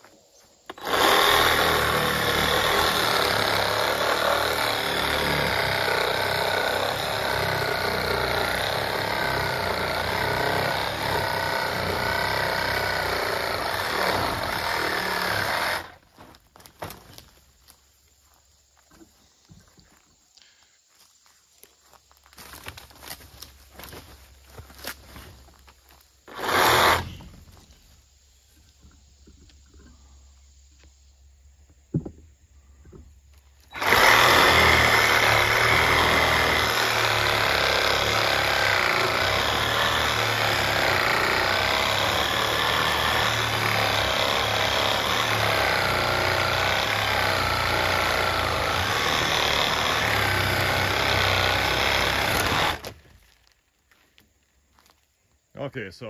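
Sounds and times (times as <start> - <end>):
reciprocating saw cutting wood: 0.7 - 16.0, 26.3 - 27.4, 33.7 - 53.0.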